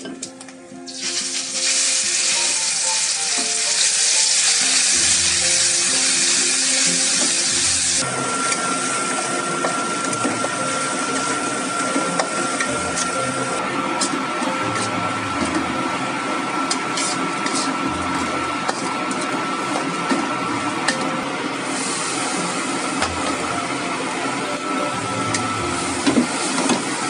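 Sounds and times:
spice paste sizzling in hot oil: 0:00.9 - 0:08.0
metal spatula scraping wok: 0:16.7 - 0:20.1.

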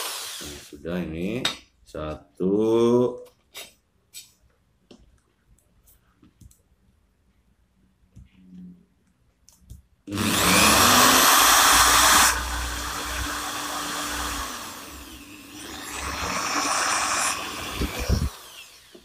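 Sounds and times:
electric drill drilling metal: 0:00.0 - 0:00.7, 0:10.1 - 0:19.0.

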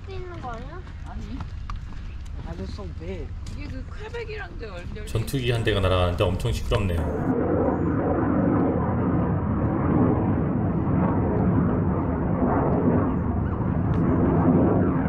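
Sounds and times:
jet flying over: 0:05.1 - 0:15.0.

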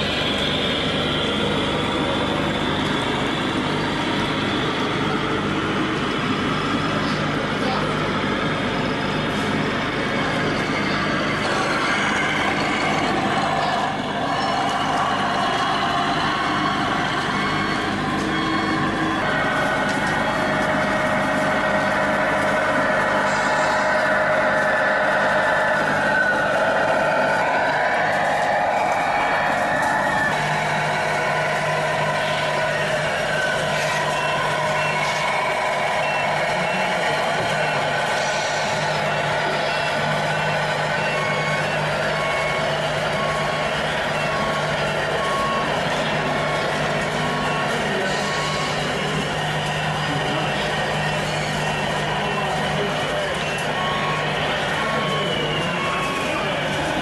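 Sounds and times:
diesel truck engine sound: 0:00.0 - 0:57.0
faint reversing beeper: 0:17.4 - 0:57.0.

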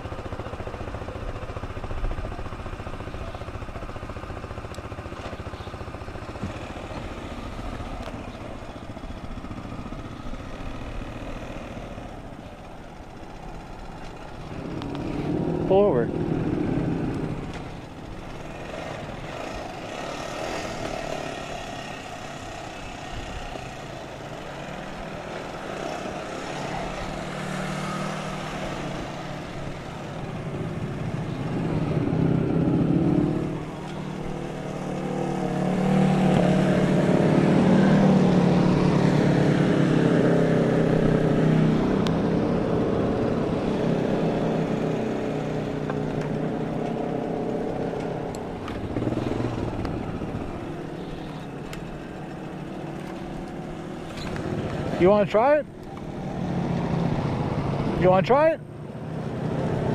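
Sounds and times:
quad engine revving: 0:13.0 - 0:59.9.

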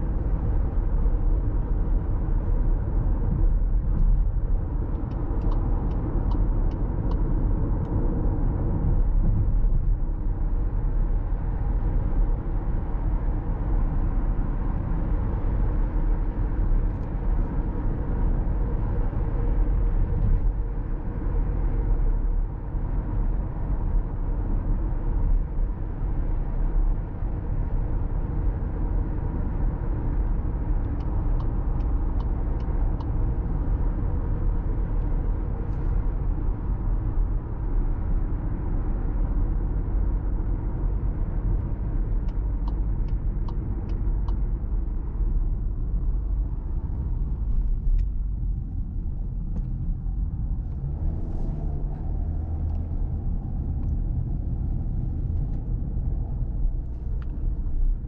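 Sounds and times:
low engine hum: 0:00.0 - 0:58.0
turn signal ticking: 0:04.8 - 0:08.0, 0:30.2 - 0:33.7, 0:41.6 - 0:44.7.

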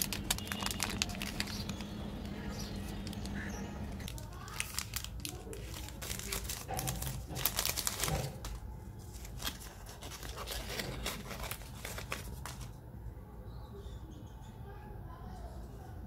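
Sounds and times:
foil wrapper crinkling and tearing: 0:00.0 - 0:03.4, 0:04.0 - 0:12.7.

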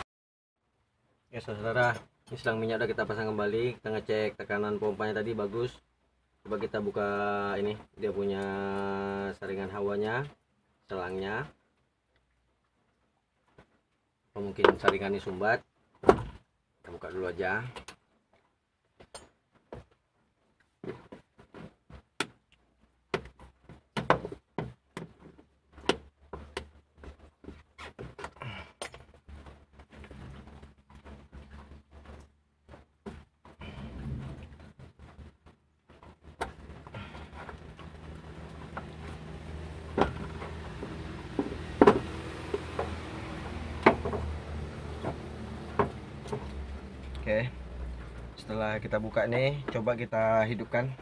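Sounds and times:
rubber hose clicks and knocks: 0:20.6 - 0:47.3.

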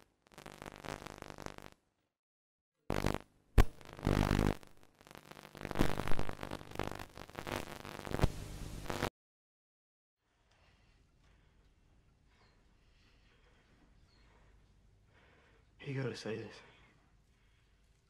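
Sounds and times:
distorted buzzing synth tones: 0:00.0 - 0:01.8, 0:02.9 - 0:09.1
static: 0:00.0 - 0:01.8, 0:02.9 - 0:09.1.

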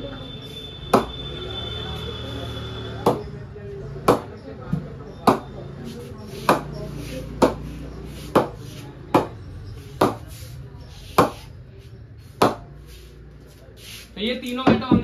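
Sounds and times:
wooden knocks on a cricket bat: 0:11.2 - 0:11.4, 0:12.4 - 0:12.6, 0:14.6 - 0:15.0.

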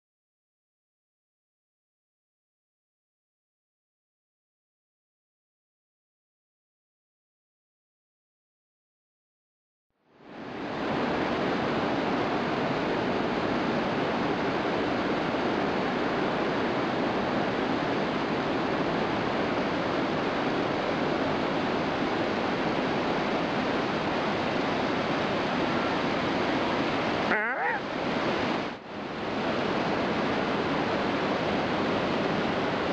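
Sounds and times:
waterfall roar: 0:10.7 - 0:32.9.

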